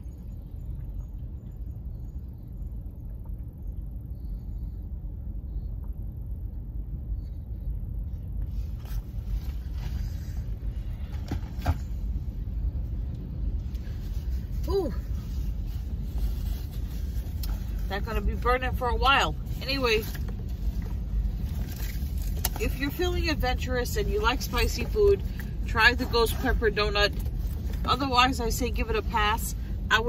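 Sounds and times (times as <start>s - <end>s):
car engine idling: 0.0s - 30.0s
faint clicks and rustles: 7.2s - 18.4s, 19.4s - 23.2s.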